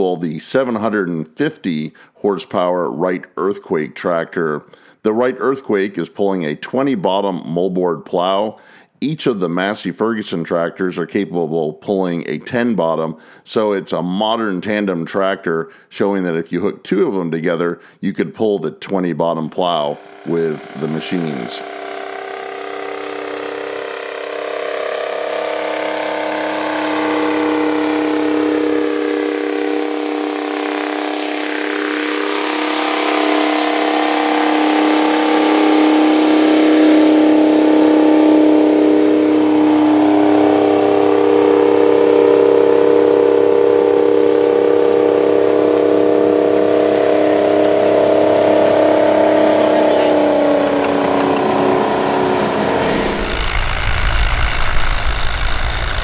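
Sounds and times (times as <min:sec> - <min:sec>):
tractor diesel engine under load: 0:00.0 - 0:00.2, 0:19.6 - 0:56.0.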